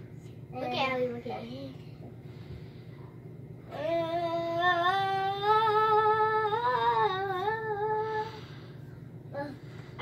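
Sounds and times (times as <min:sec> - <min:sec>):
girl singing a long note: 0:03.7 - 0:08.4.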